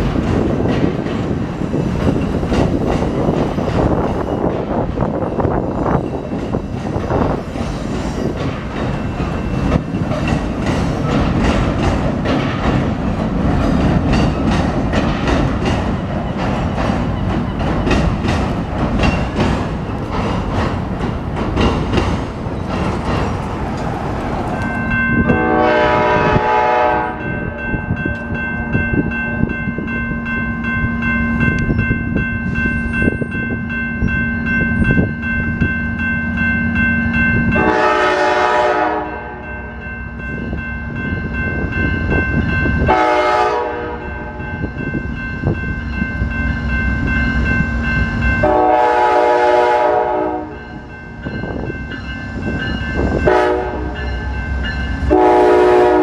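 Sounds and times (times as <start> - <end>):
train engine and wheels rumbling: 0.0 - 56.0
locomotive horn: 25.2 - 28.8, 37.6 - 39.5, 42.8 - 44.4, 48.4 - 50.7, 53.2 - 54.3, 55.0 - 56.0.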